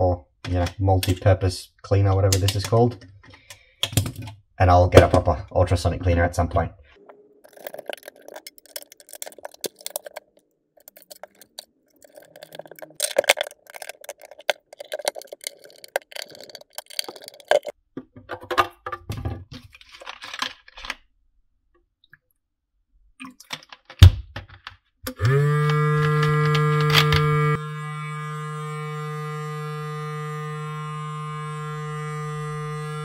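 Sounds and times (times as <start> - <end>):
plastic parts clicking and tapping: 2.2 - 4.4, 7.5 - 21.0, 23.3 - 27.2.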